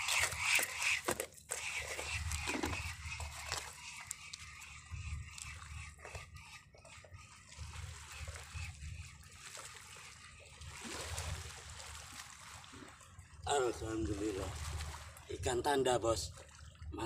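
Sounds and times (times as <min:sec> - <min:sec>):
water splashing on rocky shore: 0:14.1 - 0:15.3.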